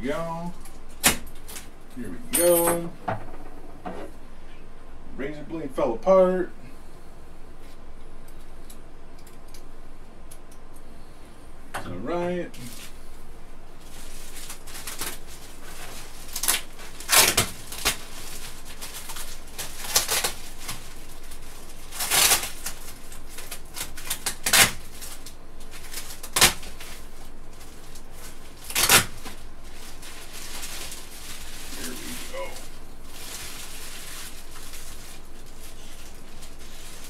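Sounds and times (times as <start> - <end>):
plastic wrap crinkling: 13.7 - 37.0
plastic wrap snapping: 13.8 - 37.0.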